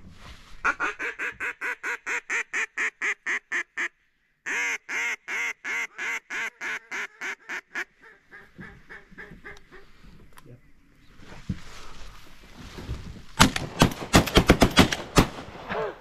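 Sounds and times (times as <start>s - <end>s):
duck call quacks: 0.6s - 9.9s.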